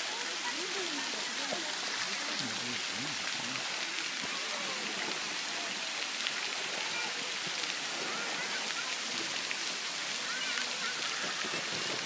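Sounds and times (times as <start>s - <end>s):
fountain water splashing into pool: 0.0s - 12.0s.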